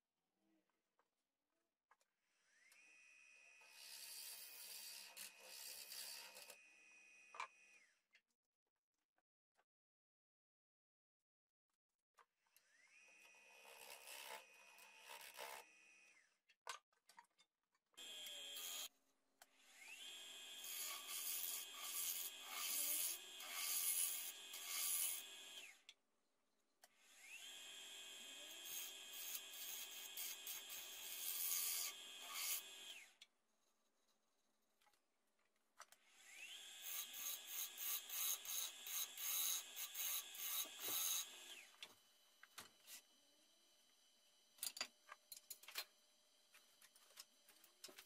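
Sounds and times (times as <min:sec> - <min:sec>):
power tool motor whine: 0:18.0 - 0:18.9, 0:27.0 - 0:33.1, 0:36.0 - 0:41.8
tool rubbing against wood: 0:20.7 - 0:25.3.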